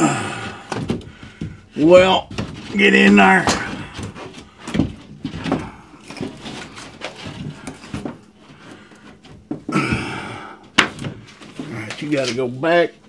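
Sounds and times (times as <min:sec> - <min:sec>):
drywall scraping: 0:00.0 - 0:10.2
drywall knocks: 0:00.6 - 0:08.2.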